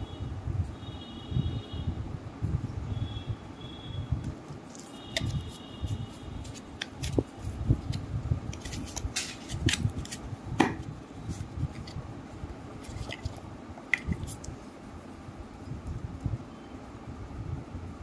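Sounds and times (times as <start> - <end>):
fingers handling packaging tube: 4.3 - 12.0, 12.6 - 14.6.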